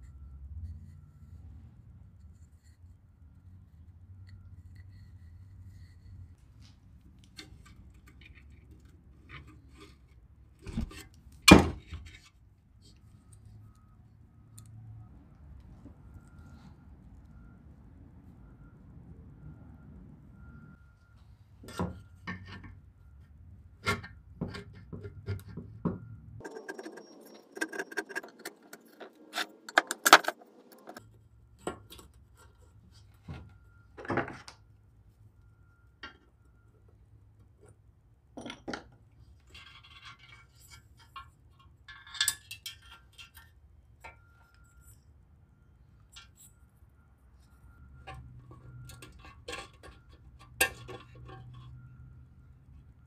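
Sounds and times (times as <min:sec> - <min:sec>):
metal scraping: 0:26.4 - 0:31.0.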